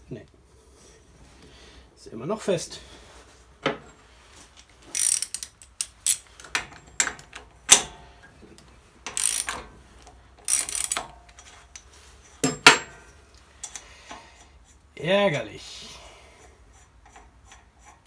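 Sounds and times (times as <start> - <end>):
ratchet wrench clicking: 4.9 - 6.3, 9.1 - 9.6, 10.4 - 11.1
sharp metal knocks: 12.4 - 13.0.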